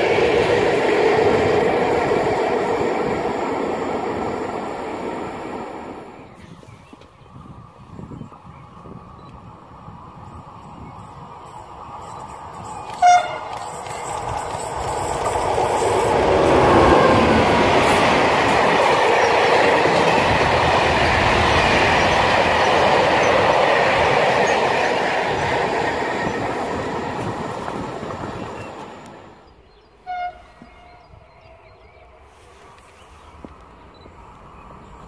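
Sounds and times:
train wagons rumbling on rails: 0:00.0 - 0:29.5
train horn blast: 0:12.9 - 0:13.8, 0:16.6 - 0:17.6, 0:30.0 - 0:31.1.

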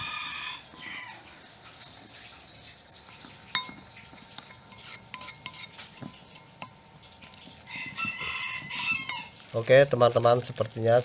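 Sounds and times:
metal spoon clinking on ceramic bowl: 0:03.5 - 0:07.5, 0:08.2 - 0:09.3.

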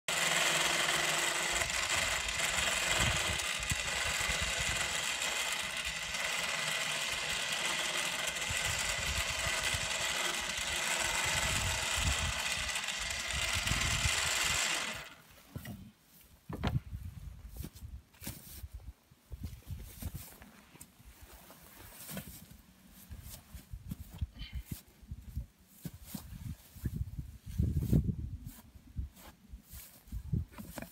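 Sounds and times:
electric motor whining hum: 0:00.1 - 0:15.3.

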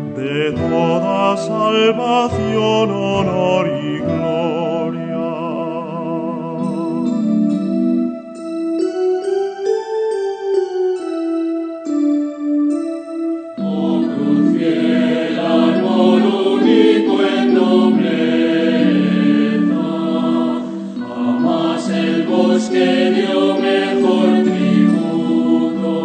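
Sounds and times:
choir singing a hymn: 0:00.0 - 0:07.3, 0:13.6 - 0:26.0
keyboard chord: 0:00.0 - 0:26.0.

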